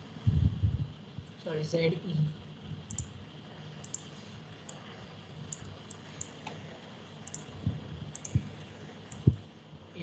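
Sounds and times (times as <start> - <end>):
faint steady hiss: 0.0 - 10.0
computer mouse clicks: 2.9 - 3.1, 3.8 - 4.8, 5.5 - 6.6, 7.2 - 7.5, 8.1 - 8.5, 9.1 - 9.4.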